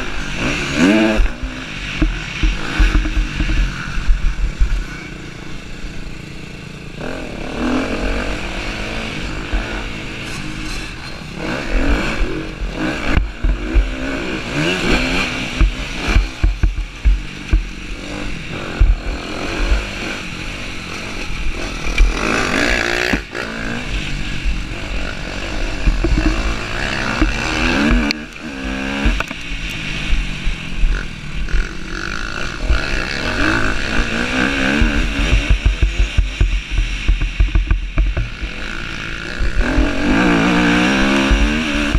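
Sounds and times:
wind rumbling on microphone: 0.0s - 6.1s, 7.0s - 41.9s
motorcycle engine revving: 0.0s - 41.9s
knocks from bumps: 25.8s - 28.2s.

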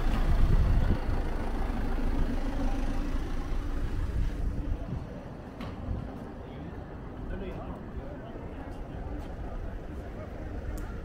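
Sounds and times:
van engine idling: 0.0s - 5.5s.

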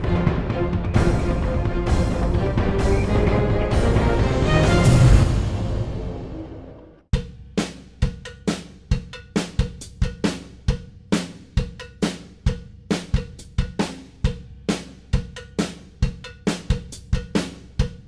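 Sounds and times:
music sting: 0.0s - 7.0s
drum-kit beat: 7.1s - 18.0s.

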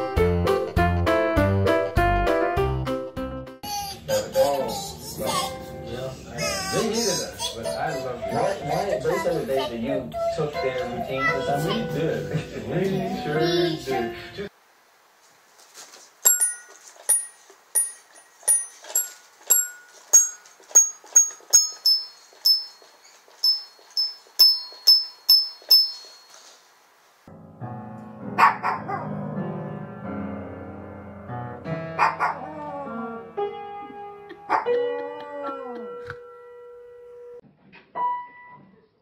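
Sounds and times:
toy xylophone notes ringing: 16.2s - 26.5s
upright piano notes: 27.3s - 35.2s
small dog barking: 28.4s - 29.1s, 32.0s - 32.5s, 34.5s - 34.8s.

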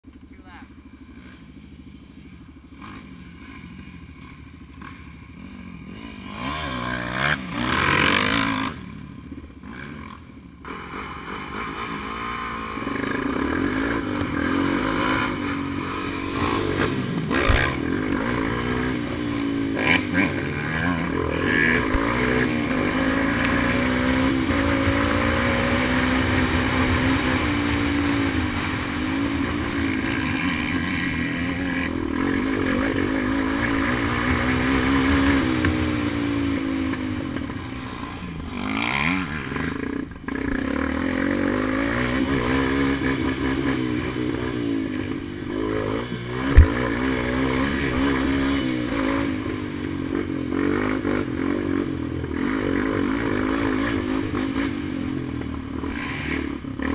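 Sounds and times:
dirt bike engines revving: 0.1s - 56.9s.

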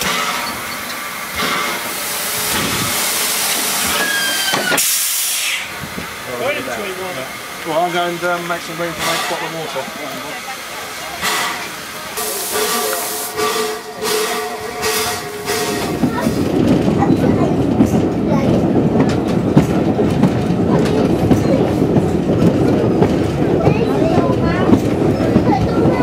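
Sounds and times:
steam hissing: 0.0s - 17.4s
train rumbling and clattering: 0.0s - 26.0s
wheels clicking over rail joints: 14.8s - 26.0s.

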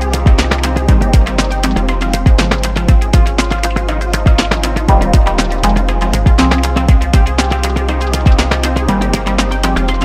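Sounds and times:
hi-hat ticks: 4.5s - 9.0s
deep kick-drum thumps: 4.9s - 5.4s, 6.2s - 7.4s.

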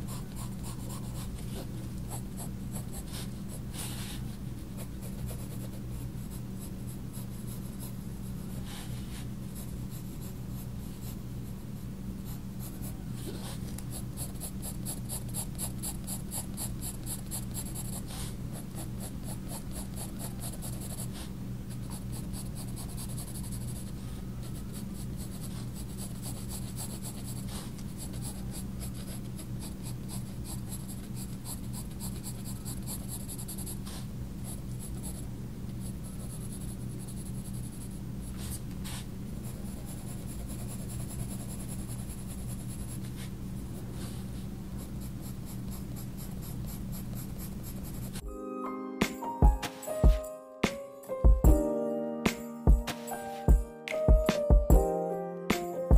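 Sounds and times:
coloured pencil scratching on paper: 0.0s - 11.6s, 12.2s - 43.4s, 44.0s - 48.2s
steady low hum: 0.0s - 48.2s.

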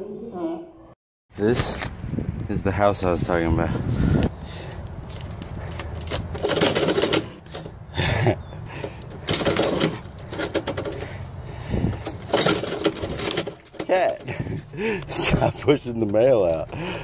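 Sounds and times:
metal mail slot flap clattering: 12.0s - 14.4s.

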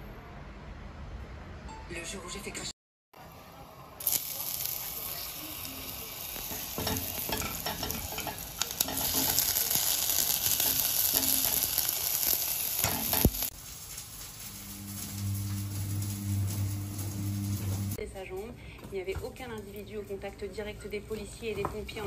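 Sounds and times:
onion and garlic sizzling in pan: 4.0s - 18.0s.

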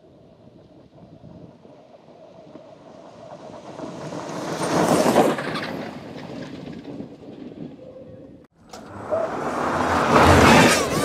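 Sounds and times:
race car rattling past on dirt: 3.4s - 7.7s, 8.7s - 11.0s.

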